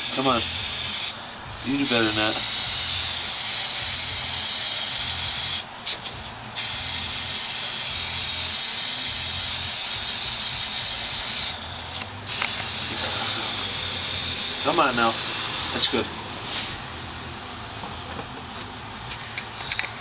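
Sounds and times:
aerosol spray can hissing: 0:00.0 - 0:11.6, 0:12.3 - 0:16.0.

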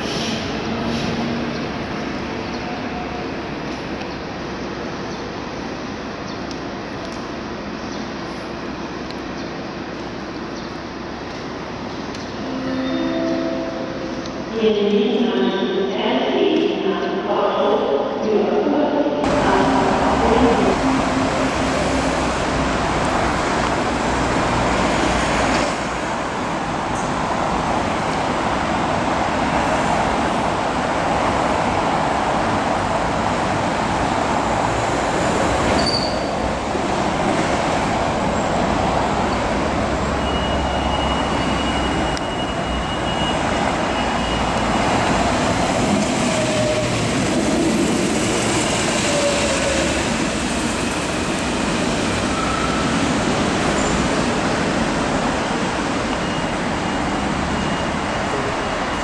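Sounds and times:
train wheels rumbling on rails: 0:19.2 - 0:59.0.

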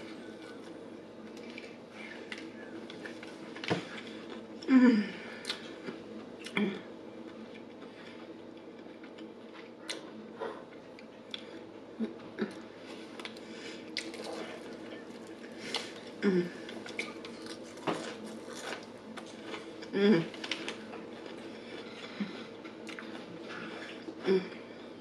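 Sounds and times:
faint steady hum: 0:00.0 - 0:25.0
chewing crispy food: 0:07.2 - 0:24.8.

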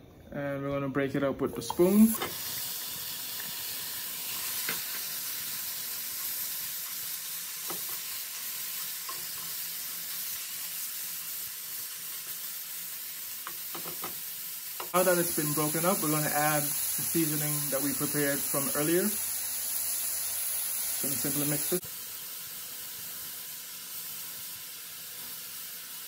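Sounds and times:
meat sizzling in a skillet: 0:01.8 - 0:26.0
spoon tapping pan: 0:13.4 - 0:14.2.

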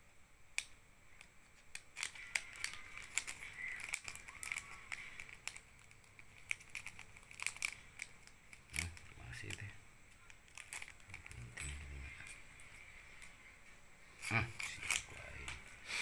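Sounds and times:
plastic sleeve crinkling: 0:01.3 - 0:13.4, 0:14.2 - 0:15.7.

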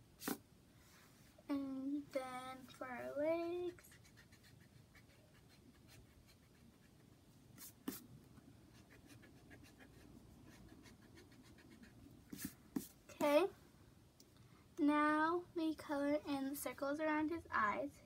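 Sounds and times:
pencil scratching on paper: 0:03.5 - 0:08.0, 0:08.7 - 0:13.3.

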